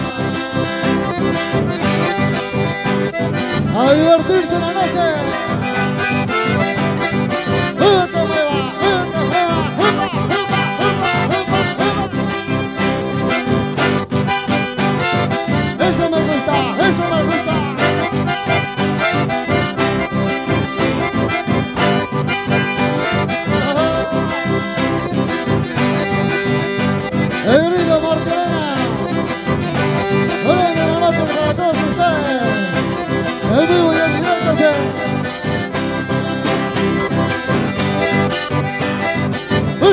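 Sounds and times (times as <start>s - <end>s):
accordion dance music: 0.0s - 39.9s.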